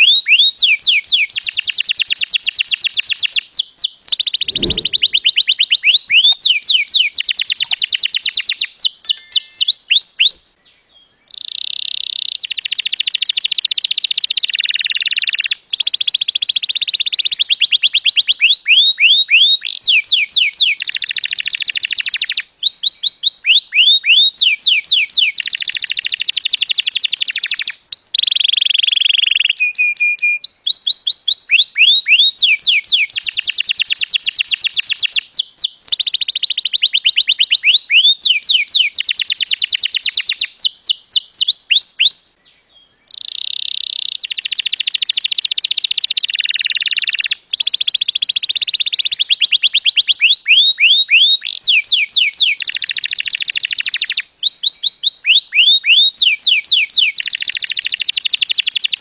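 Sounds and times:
canary singing trills: 8.8s - 20.9s.

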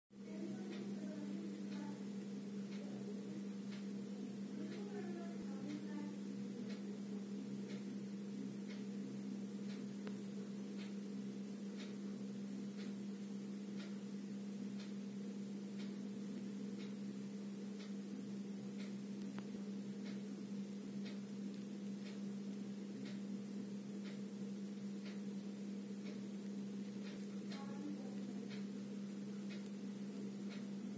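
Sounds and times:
faint regular ticking: 0.2s - 30.9s
steady low hum: 0.2s - 30.9s.

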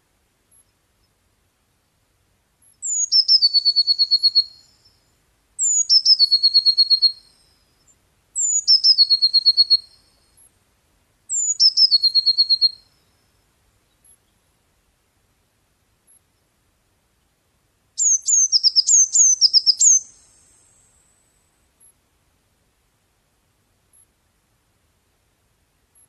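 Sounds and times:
blue tit singing: 2.8s - 4.8s, 5.6s - 7.3s, 8.4s - 10.0s, 11.3s - 12.8s, 18.0s - 21.0s.

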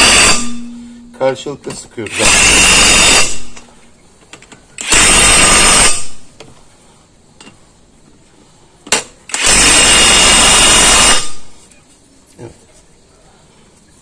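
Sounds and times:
impact wrench running: 0.0s - 0.9s, 2.0s - 3.6s, 4.8s - 6.3s, 9.3s - 11.4s.

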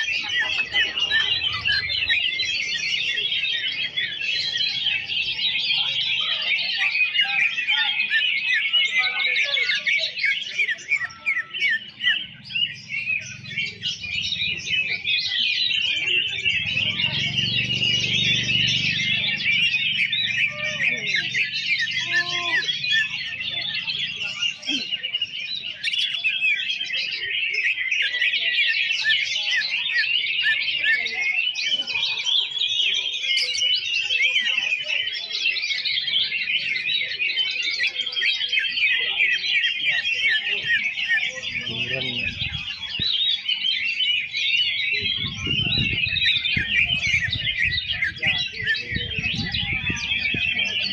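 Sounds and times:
birds twittering chorus: 0.0s - 50.9s.

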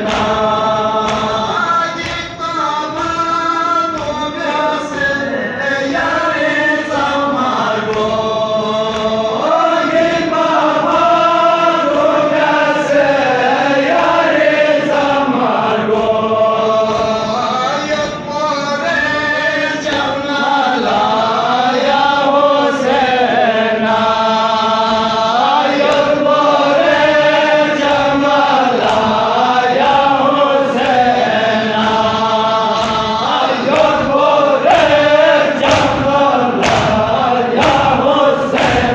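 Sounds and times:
crowd of men chanting: 0.0s - 38.9s
man singing into a microphone: 0.6s - 9.7s, 16.5s - 23.3s.

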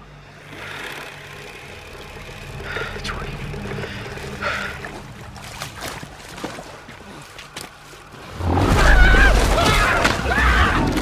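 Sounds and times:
low sustained tones: 0.0s - 6.2s
steady rushing background: 0.0s - 6.9s.

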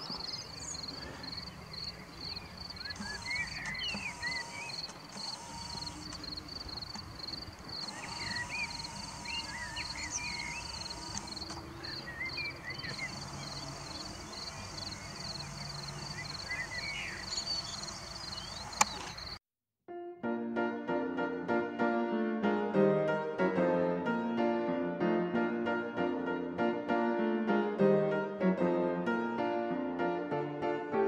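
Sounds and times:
birds calling: 0.0s - 19.4s
crickets chirping: 0.0s - 19.4s
sharp click: 18.7s - 19.4s.

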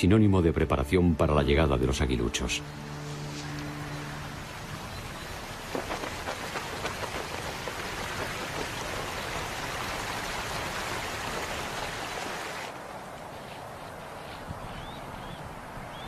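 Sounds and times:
water rushing and splashing: 2.6s - 13.1s
patter of drops: 5.6s - 9.6s.

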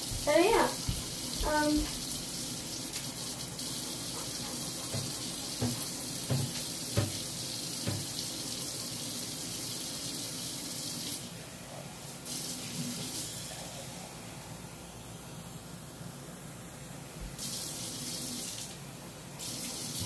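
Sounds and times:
water running from a tap: 0.0s - 11.4s, 12.2s - 13.5s, 17.3s - 18.8s, 19.4s - 20.0s
soft knocks: 4.9s - 7.2s, 7.8s - 8.1s.

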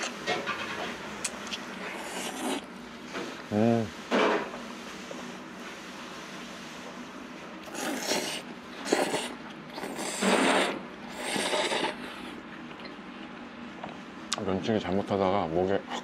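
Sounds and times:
person slurping noodles: 1.8s - 2.7s, 7.6s - 12.4s.

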